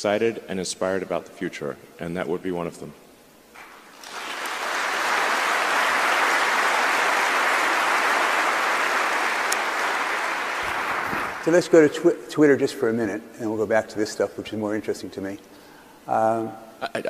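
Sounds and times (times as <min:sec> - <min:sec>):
audience applauding: 0:03.6 - 0:11.7.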